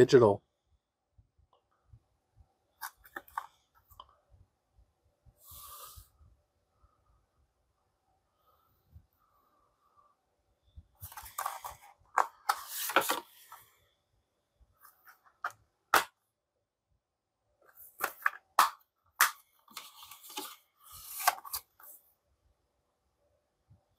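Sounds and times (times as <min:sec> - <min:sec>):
plastic case rustling and scraping: 0:02.8 - 0:04.0, 0:11.0 - 0:13.7, 0:17.7 - 0:22.0.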